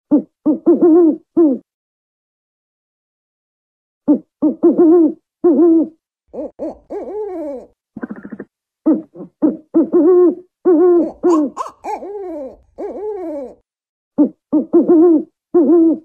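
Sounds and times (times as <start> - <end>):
owl hooting: 4.1 - 13.6, 14.2 - 16.0.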